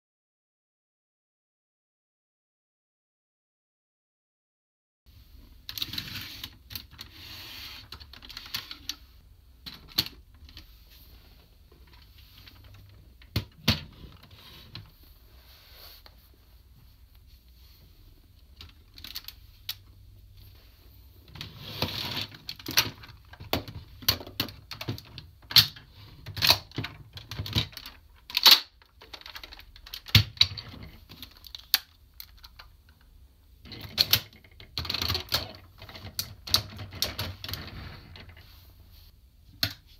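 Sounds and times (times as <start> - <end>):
plastic parts snapping and clattering: 21.3 - 32.7, 33.7 - 38.4
plastic toy parts clicking: 22.2 - 32.7.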